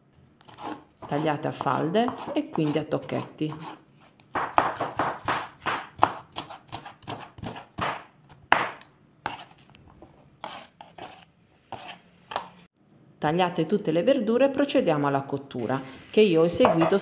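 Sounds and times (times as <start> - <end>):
knife chopping on wooden board: 0.5 - 2.8, 3.5 - 9.5.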